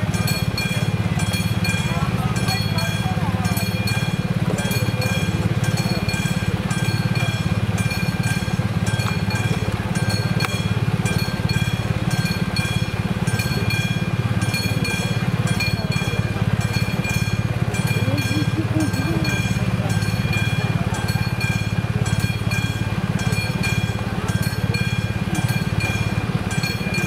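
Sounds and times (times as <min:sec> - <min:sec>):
level crossing warning bell: 0:00.0 - 0:27.0.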